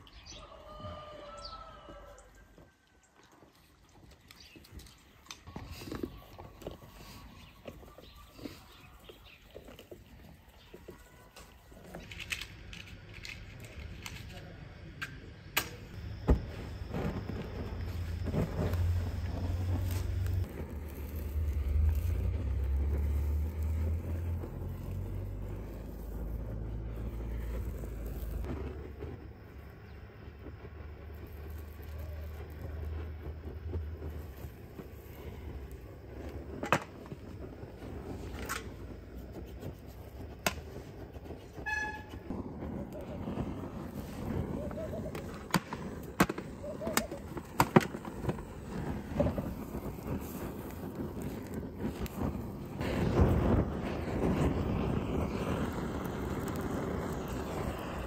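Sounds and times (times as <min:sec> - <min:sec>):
torch flame rumbling: 0:03.5 - 0:58.0
gas torch clicks and rattles: 0:11.4 - 0:15.9, 0:38.3 - 0:38.9
gas torch lighting pop: 0:15.0 - 0:29.2, 0:36.3 - 0:38.9, 0:40.2 - 0:58.0.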